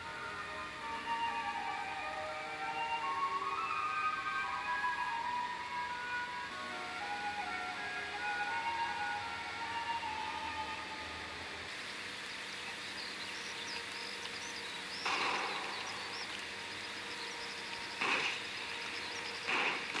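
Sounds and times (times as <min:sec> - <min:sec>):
steady background hiss: 0:00.0 - 0:20.0
faint high chirps: 0:12.1 - 0:20.0
short rushing noise bursts: 0:17.9 - 0:20.0.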